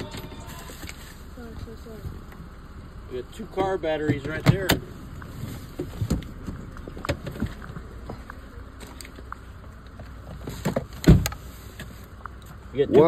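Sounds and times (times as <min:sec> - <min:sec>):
low steady rumble: 0:00.0 - 0:13.0
light knocks and shuffling: 0:03.5 - 0:13.0.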